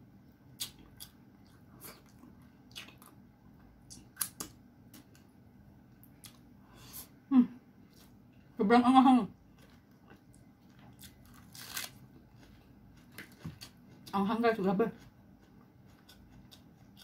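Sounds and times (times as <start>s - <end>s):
wet chewing and lip-smacking: 0.6s - 3.2s, 15.0s - 17.0s.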